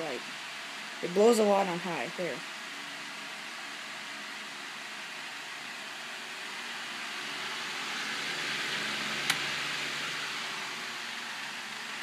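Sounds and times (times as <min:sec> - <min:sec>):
electric fan blowing air: 0:00.0 - 0:12.0.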